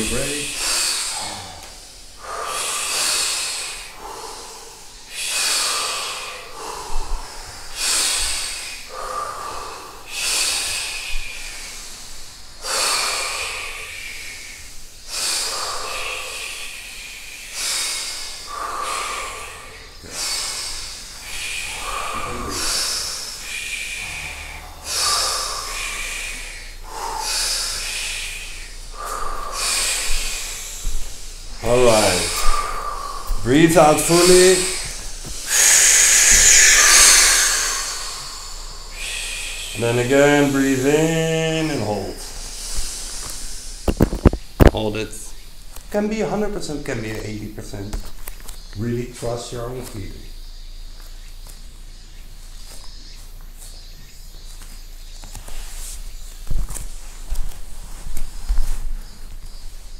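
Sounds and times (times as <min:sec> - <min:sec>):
people breathing deeply: 0:00.0 - 0:59.9.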